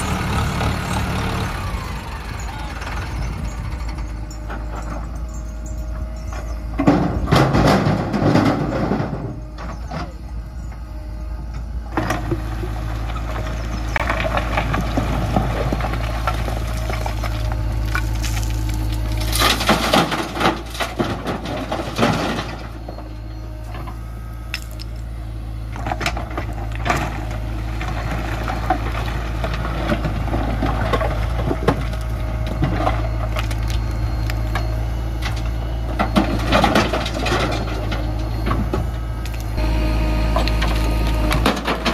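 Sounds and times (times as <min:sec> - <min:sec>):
diesel engine running: 0:00.0 - 0:41.9
stones clattering into steel trolley: 0:06.2 - 0:10.2, 0:13.1 - 0:25.1, 0:25.8 - 0:33.9, 0:40.4 - 0:41.9
bucket scraping stone pile: 0:13.9 - 0:22.7.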